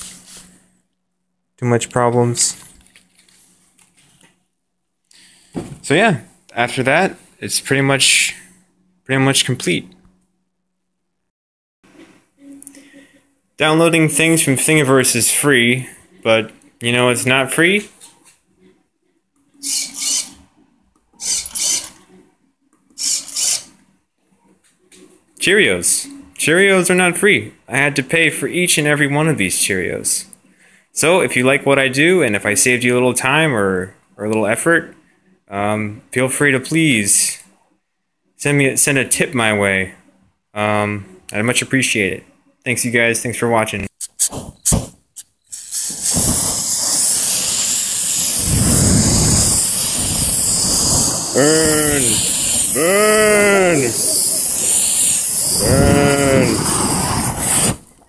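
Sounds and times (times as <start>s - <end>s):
aerosol spray can hissing: 45.5s - 57.8s.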